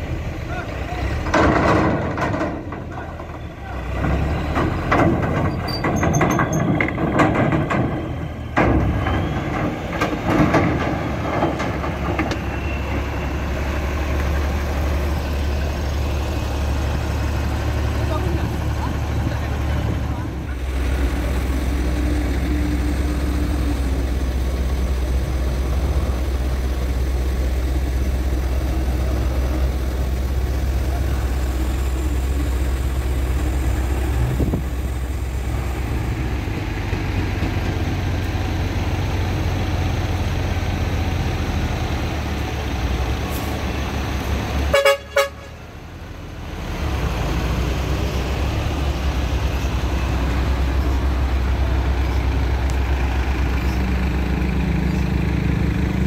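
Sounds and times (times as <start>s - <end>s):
truck engine rumbling: 0.0s - 56.0s
truck horn blast: 44.7s - 45.6s.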